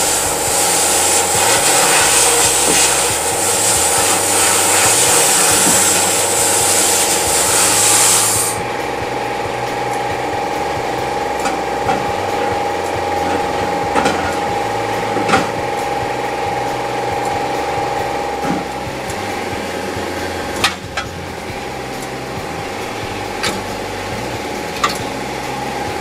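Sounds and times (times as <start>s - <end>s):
sandblasting hiss: 0.0s - 26.0s
steady hum: 0.0s - 26.0s.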